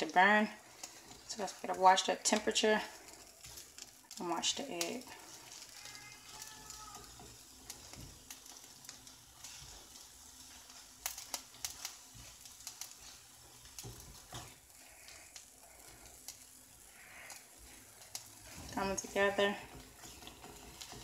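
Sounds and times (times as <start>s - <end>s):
egg sizzling in frying pan: 0.0s - 21.0s
spatula scraping and tapping: 5.2s - 15.2s, 17.2s - 21.0s.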